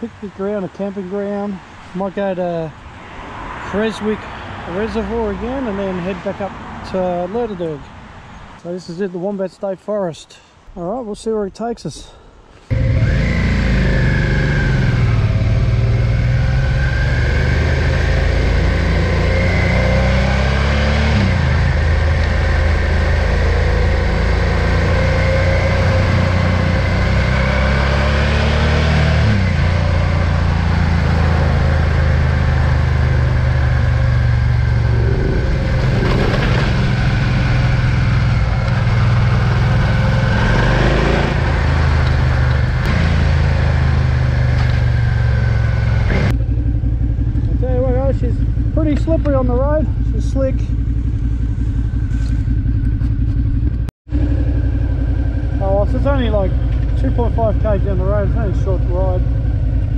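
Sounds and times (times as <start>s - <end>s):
motorcycle engine accelerating: 12.7s - 59.9s.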